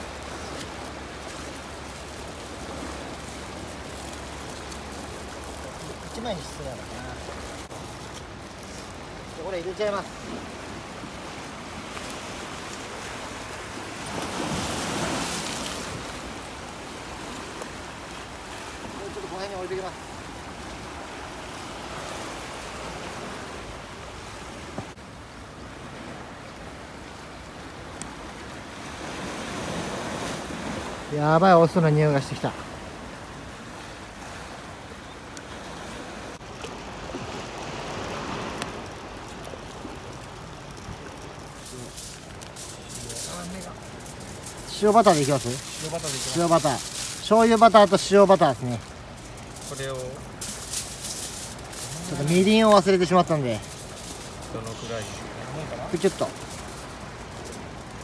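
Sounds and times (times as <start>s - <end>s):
surf washing on shore: 0.0s - 58.0s
faint clicks: 37.4s - 44.7s.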